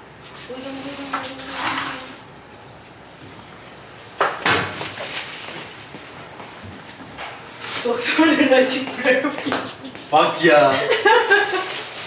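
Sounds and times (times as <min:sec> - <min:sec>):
plastic bags rustling: 0:04.7 - 0:06.3, 0:07.4 - 0:08.9, 0:10.4 - 0:12.0.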